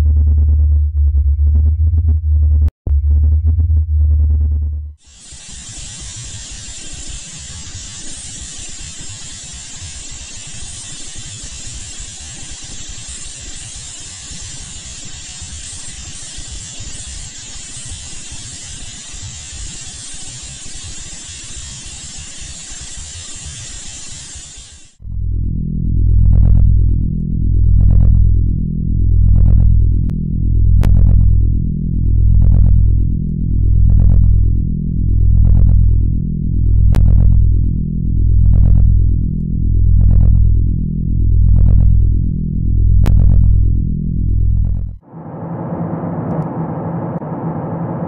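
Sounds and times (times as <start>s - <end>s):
deep synthesized drone: 0.0s - 5.4s, 25.0s - 48.0s
static hiss with crackle: 5.0s - 25.0s.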